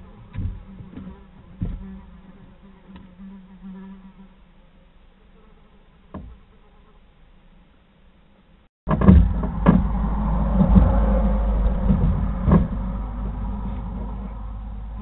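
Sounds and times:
bumps and knocks on wooden box: 0.2s - 2.2s, 6.1s - 6.5s, 8.9s - 9.9s
low rumble: 8.9s - 15.0s.

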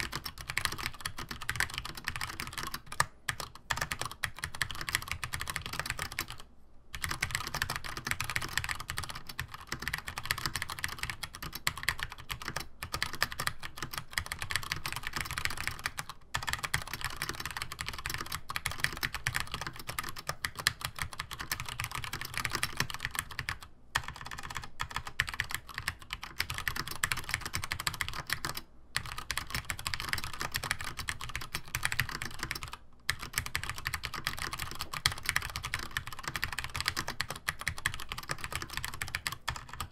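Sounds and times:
fast keyboard typing: 0.0s - 39.9s.

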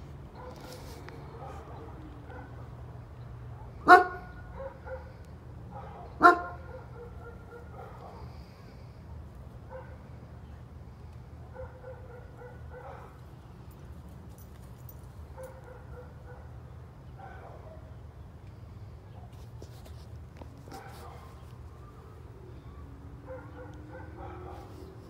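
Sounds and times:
dog barking: 0.4s - 2.7s, 3.5s - 8.7s, 9.6s - 10.1s, 11.4s - 13.2s, 15.3s - 18.0s, 20.7s - 21.4s, 23.2s - 25.0s.

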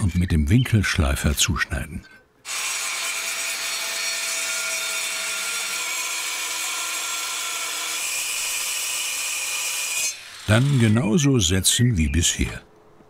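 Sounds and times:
angle grinder cutting concrete: 2.5s - 11.2s.

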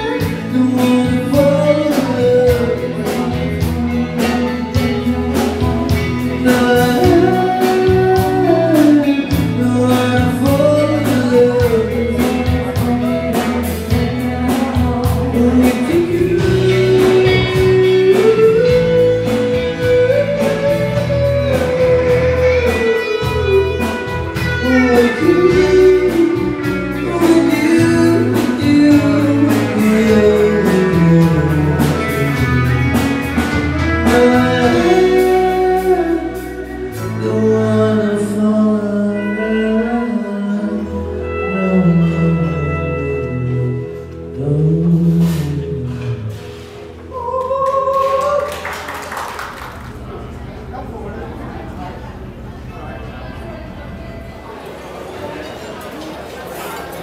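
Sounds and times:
woman singing: 0.0s - 32.5s, 33.9s - 43.0s
band playing: 0.0s - 57.0s
guitar: 0.0s - 57.0s.

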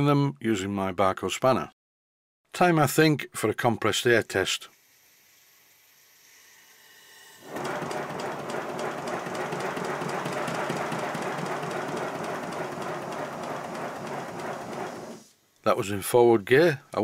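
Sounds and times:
air hissing: 4.7s - 15.4s
model locomotive exhaust beats: 7.5s - 15.3s.

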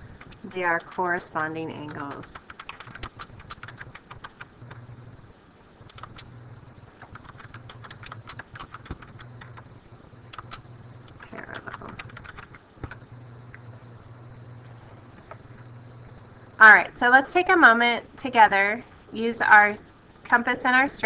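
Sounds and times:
low steady hum: 0.0s - 21.0s
computer keyboard typing: 1.7s - 4.8s, 5.9s - 6.3s, 6.9s - 9.7s, 10.3s - 13.0s.

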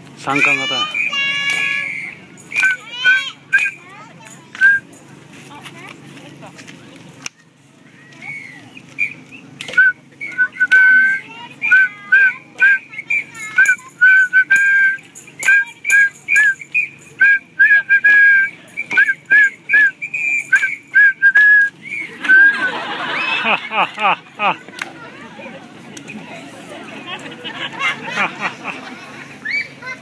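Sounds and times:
person whistling a tune: 0.4s - 3.8s, 4.6s - 4.9s, 8.2s - 22.8s.

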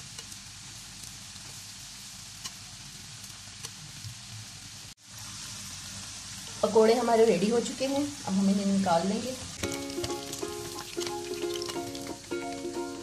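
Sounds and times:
food deep-frying in hot oil: 0.0s - 13.0s
oil popping and crackling: 9.6s - 13.0s.

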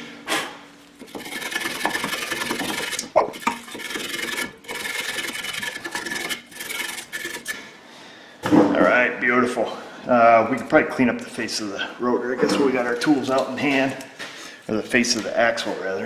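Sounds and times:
wire brush scrubbing metal: 1.0s - 7.7s.

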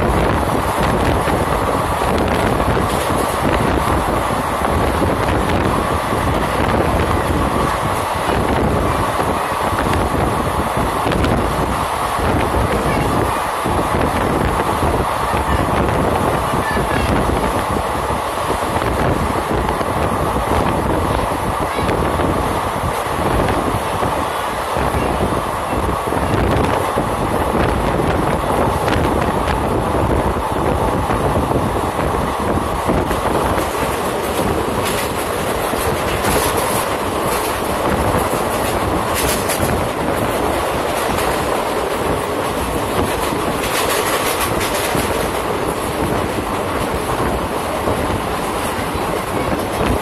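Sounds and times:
train wheels rumbling on rail: 0.0s - 50.0s
wheels clicking over rail joints: 32.8s - 50.0s.

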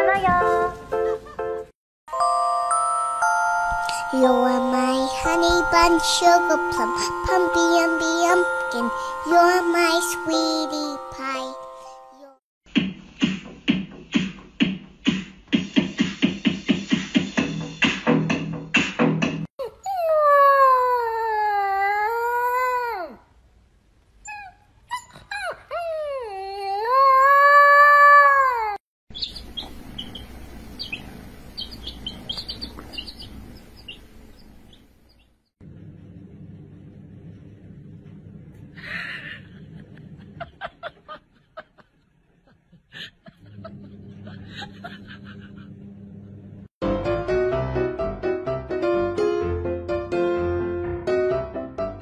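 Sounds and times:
puppy howling: 19.6s - 23.2s.

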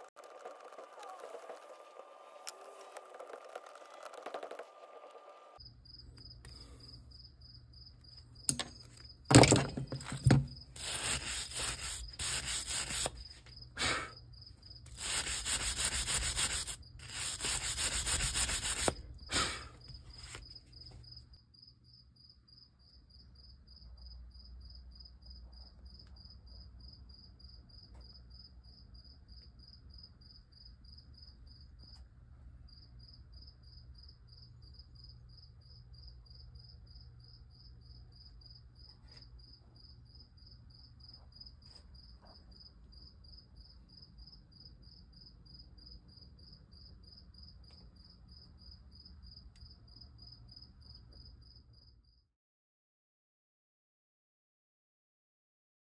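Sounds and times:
wood scraping against metal: 8.5s - 13.2s.

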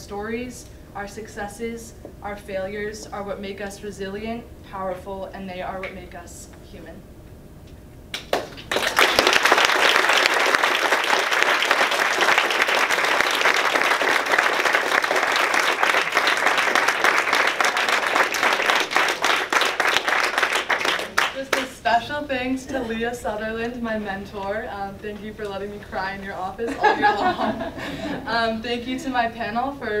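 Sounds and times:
audience clapping: 8.1s - 21.7s.

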